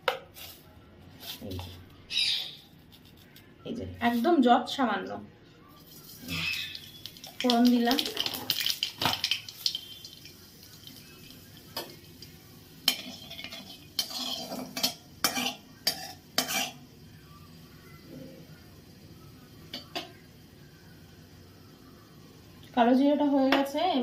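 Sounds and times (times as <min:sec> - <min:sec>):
spatula scraping a wok: 0:12.9 - 0:16.8.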